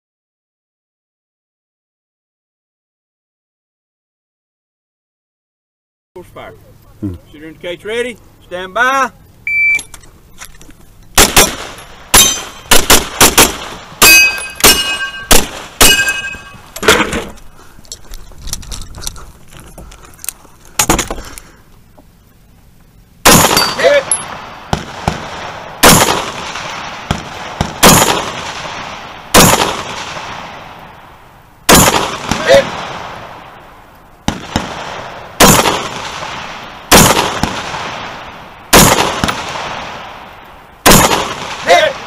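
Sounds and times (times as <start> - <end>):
pistol shots: 11.2 - 17.1, 23.2 - 30.8, 31.7 - 33.4, 34.2 - 42.0
rifle shots: 11.2 - 17.3, 23.2 - 31.0, 31.7 - 33.6, 34.2 - 42.0
metallic ring: 11.7 - 12.7, 14.0 - 16.8, 23.5 - 24.3.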